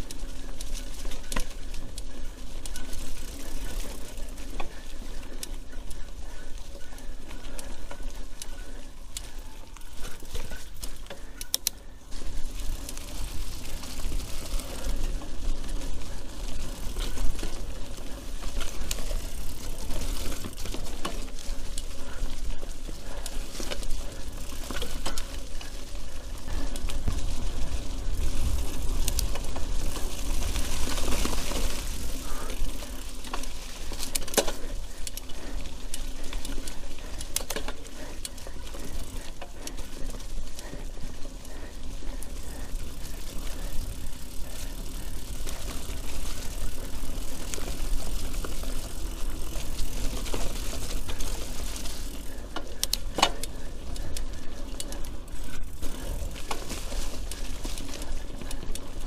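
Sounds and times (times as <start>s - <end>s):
bike rattling: 0.0s - 59.0s
bike tyre noise: 0.0s - 59.0s
wind rumbling on microphone: 23.3s - 33.4s.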